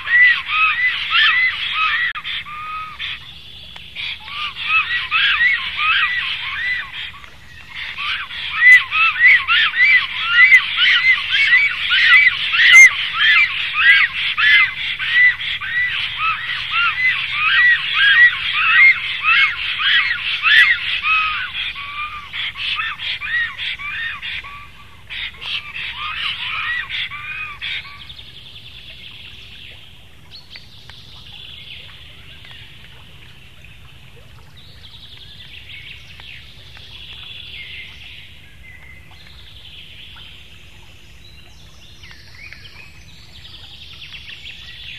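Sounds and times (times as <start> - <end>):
storks calling: 0.0 - 3.3, 4.0 - 28.1.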